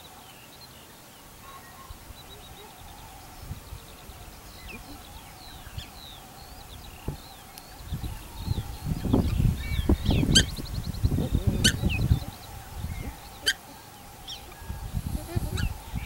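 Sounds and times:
songbirds chirping: 0.0s - 16.0s
shrill bird calls: 11.6s - 14.8s.

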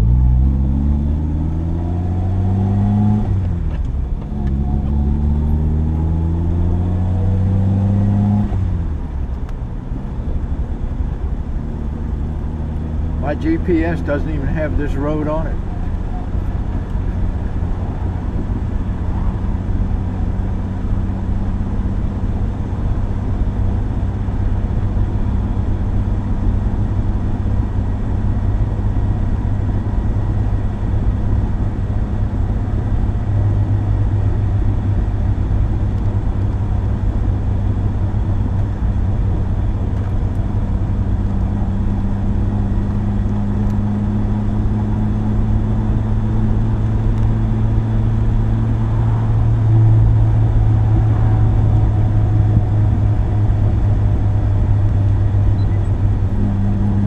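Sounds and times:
car engine droning: 0.0s - 57.0s.

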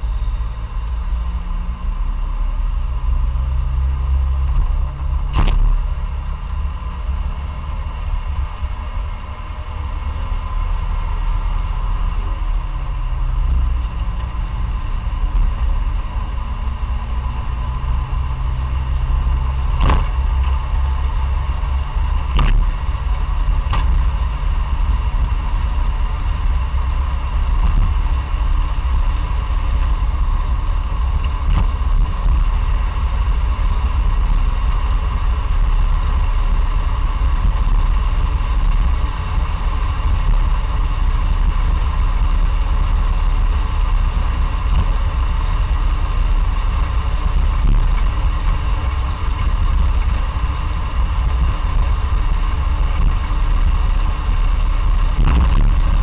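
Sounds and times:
car engine running: 0.0s - 56.0s.

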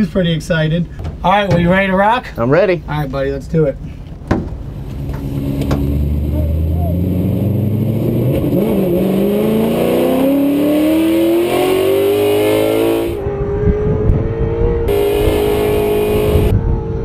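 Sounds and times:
car engine revving: 4.8s - 17.0s.

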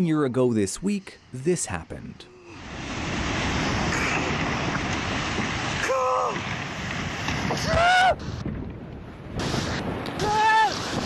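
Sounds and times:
wave crashing on rocky shore: 2.4s - 8.5s
person shouting: 5.8s - 6.4s, 7.6s - 8.2s, 10.2s - 10.8s.

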